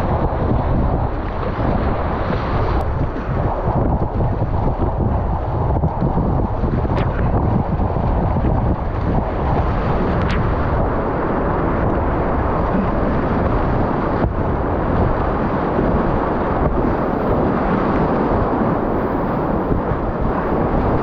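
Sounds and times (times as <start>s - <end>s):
whitewater rapid rushing: 9.3s - 21.0s.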